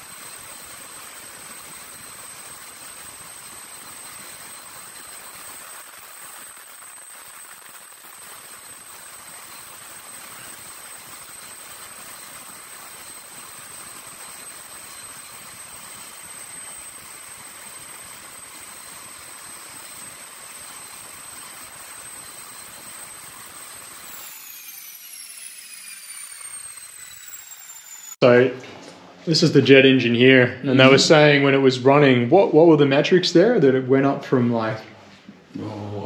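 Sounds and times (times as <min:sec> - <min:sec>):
jet engine high whine: 0:00.0 - 0:28.2
jet engine running: 0:00.0 - 0:28.2.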